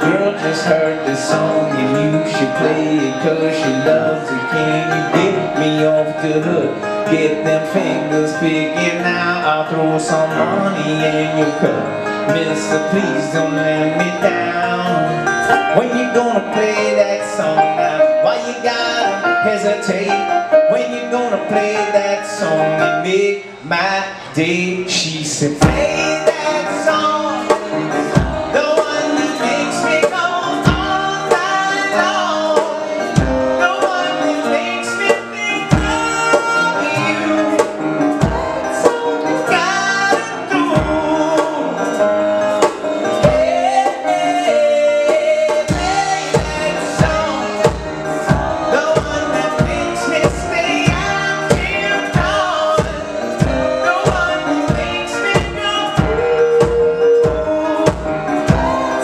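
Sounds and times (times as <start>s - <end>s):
live band playing pop song: 0.0s - 59.0s
man singing: 0.0s - 59.0s
steady low beat: 35.8s - 39.2s, 45.7s - 59.0s.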